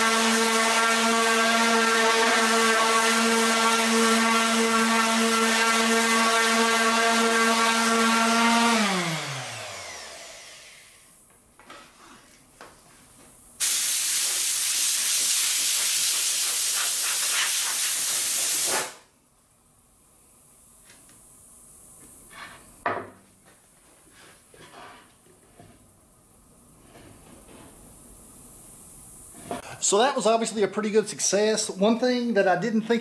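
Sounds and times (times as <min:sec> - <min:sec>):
orbital sander whining: 0:00.0 - 0:11.0
loud steady hiss: 0:13.3 - 0:23.0, 0:25.9 - 0:33.0.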